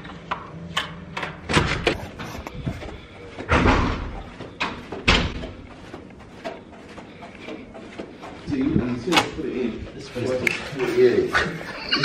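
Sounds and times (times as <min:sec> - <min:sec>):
sharp knocks and thumps: 0:03.4 - 0:08.2.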